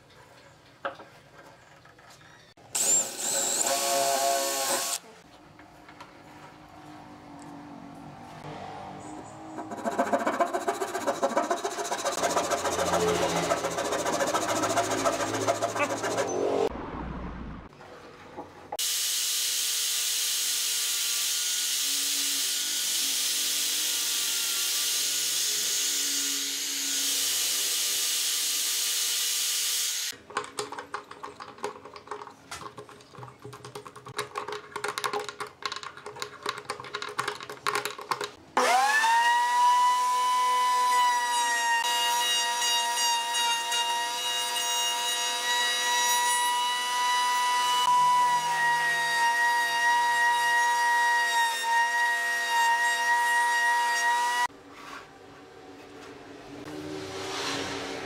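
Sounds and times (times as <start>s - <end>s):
router whining: 9.7s - 16.6s, 38.6s - 41.1s
scattered clicks and knocks: 30.2s - 38.4s.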